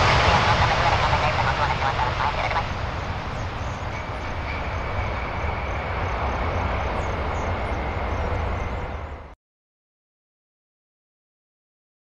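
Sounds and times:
jet engines rumbling: 0:00.0 - 0:09.4
thin steady whine: 0:00.0 - 0:09.4.

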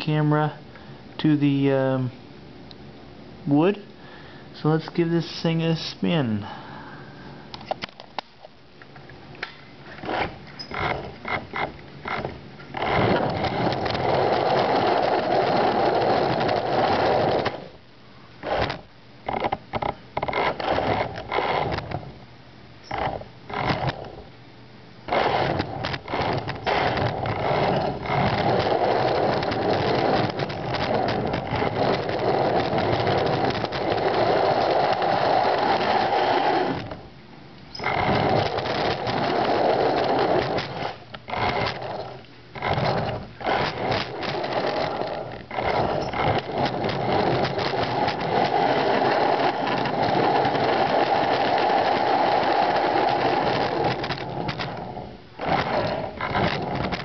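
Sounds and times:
small electric motor whirring: 0:10.0 - 0:17.8, 0:18.4 - 0:22.0, 0:22.8 - 0:24.3, 0:25.1 - 0:37.0, 0:37.8 - 0:57.0.

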